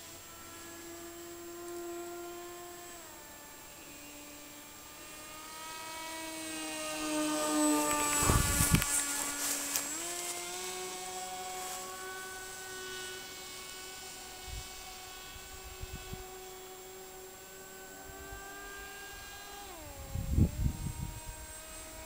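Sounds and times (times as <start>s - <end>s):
model plane motor whining: 0.0s - 22.0s
wind thumps on microphone: 8.0s - 9.0s.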